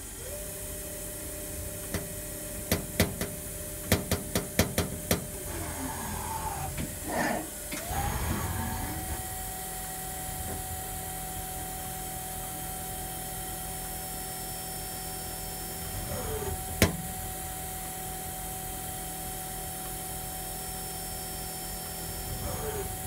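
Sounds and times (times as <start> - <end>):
lathe humming and whining: 5.3 - 23.0.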